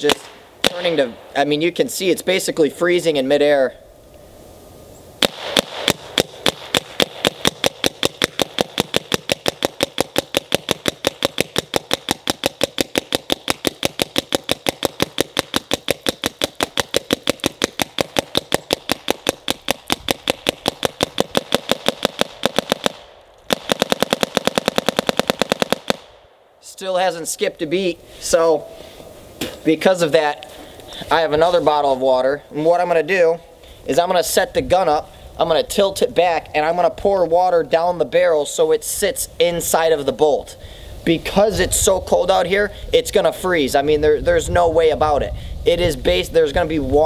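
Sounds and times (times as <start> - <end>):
paintball marker air shots: 0.0 - 1.3, 5.2 - 26.4.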